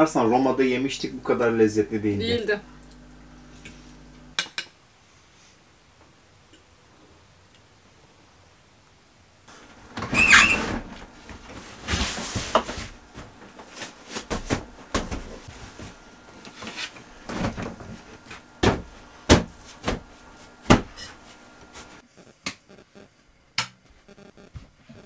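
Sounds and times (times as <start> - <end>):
drawer sliding shut with squeak: 10.0 - 10.9
cupboard doors and dishes knocking: 18.6 - 20.1.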